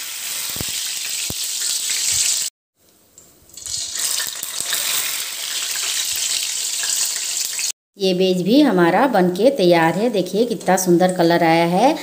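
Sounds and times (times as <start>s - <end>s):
batter deep-frying in oil: 0.0s - 2.5s, 3.1s - 7.8s.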